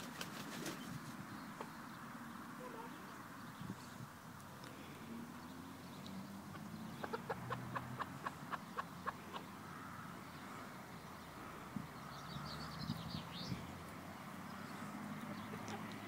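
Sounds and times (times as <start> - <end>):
hen clucking: 6.5 - 9.6.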